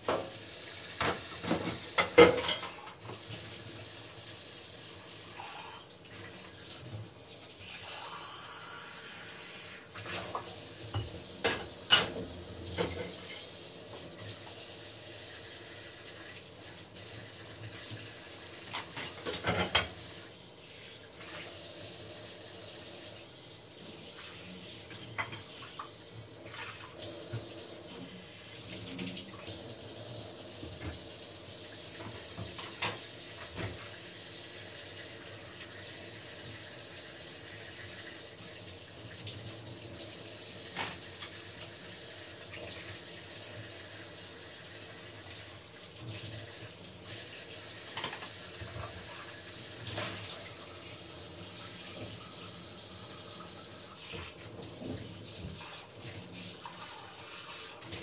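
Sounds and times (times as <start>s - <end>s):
tap water running into basin: 0.0s - 58.0s
dishes clinking and knocking: 1.0s - 2.8s, 10.9s - 13.3s, 18.7s - 20.0s.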